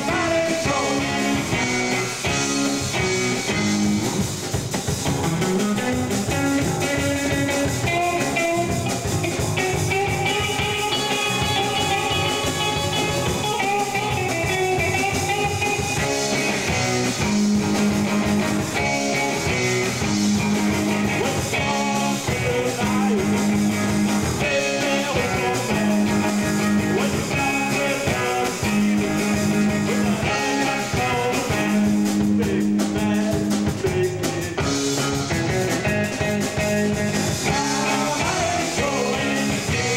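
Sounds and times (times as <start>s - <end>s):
person singing: 0.0s - 1.8s, 21.0s - 23.7s, 24.4s - 35.2s, 36.2s - 39.9s
drums: 0.0s - 39.9s
electric guitars: 0.0s - 39.9s.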